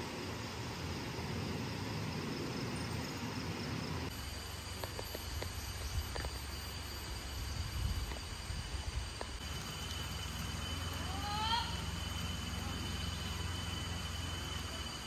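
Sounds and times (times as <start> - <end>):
high insect drone: 0.0 - 15.0
stream running over rocks: 8.9 - 15.0.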